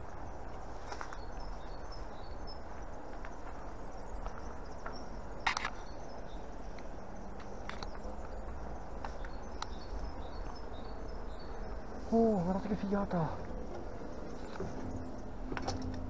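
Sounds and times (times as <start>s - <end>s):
steady background hiss: 0.0s - 15.9s
high bird chirps: 3.5s - 15.4s.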